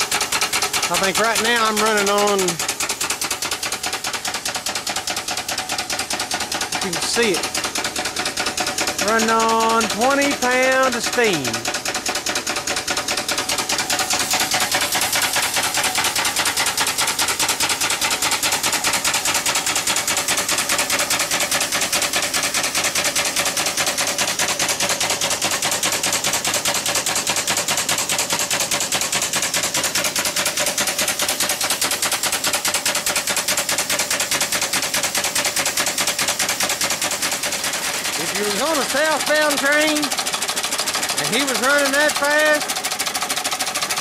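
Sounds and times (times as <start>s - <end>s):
steam engine exhaust rattle: 0.0s - 44.0s.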